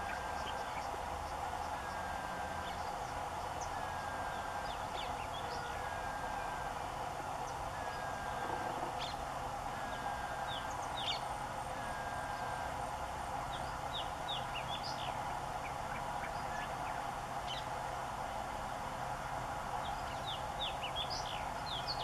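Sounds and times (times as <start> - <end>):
small birds chirping: 0.0 - 6.0, 7.3 - 11.3, 13.4 - 17.8, 19.8 - 22.0
steady background drone: 0.0 - 22.0.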